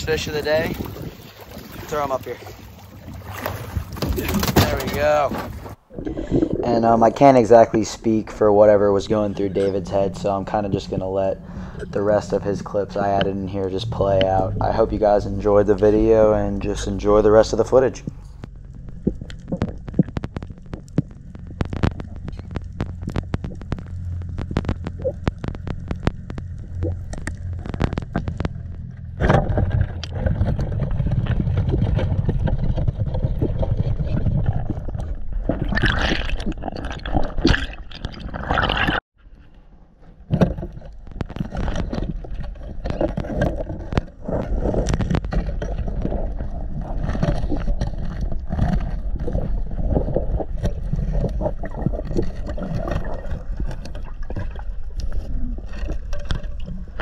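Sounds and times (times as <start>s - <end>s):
underwater rushing and gurgling: 0.0s - 39.0s, 40.5s - 57.0s
knocks and scrapes: 3.3s - 35.8s, 36.4s - 57.0s.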